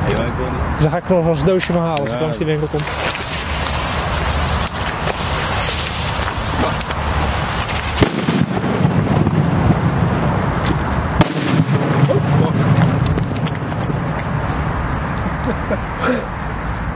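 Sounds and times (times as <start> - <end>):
firework crackling: 2.3 - 15.8
firework sharp cracks: 2.8 - 14.9.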